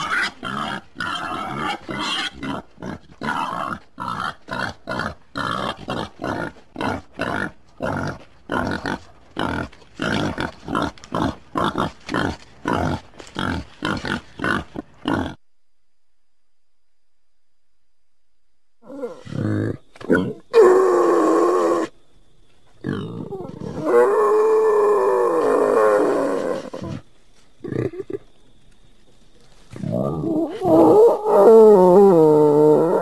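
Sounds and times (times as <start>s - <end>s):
wild boar grunting: 0.0s - 15.4s, 22.8s - 28.3s.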